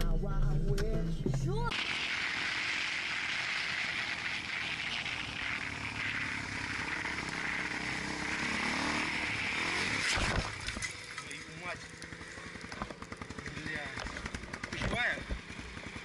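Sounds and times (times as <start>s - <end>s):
vehicle noise with even hiss: 1.7s - 16.0s.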